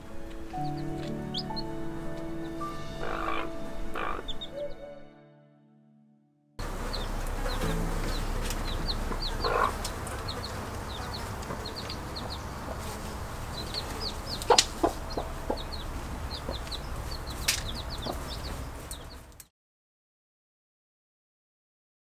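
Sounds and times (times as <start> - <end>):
chicks peeping: 0.0 - 4.9, 6.6 - 19.4
hen clucking: 2.4 - 4.9, 6.6 - 19.3.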